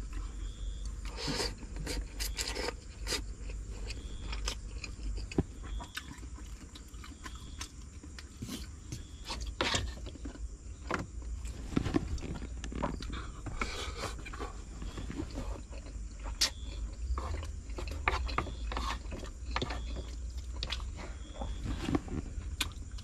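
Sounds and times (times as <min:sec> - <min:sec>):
chewing and slurping: 0:00.0 - 0:10.5, 0:11.3 - 0:23.0
fork scraping wooden plate: 0:17.2 - 0:20.1.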